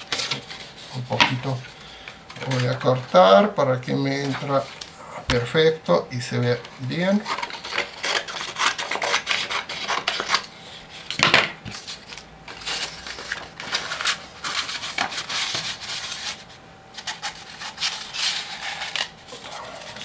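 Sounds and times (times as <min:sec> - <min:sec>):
paper rustling and crumpling: 0:00.0 - 0:01.6, 0:11.7 - 0:20.0
scissors cutting paper: 0:07.2 - 0:10.5, 0:17.0 - 0:20.0.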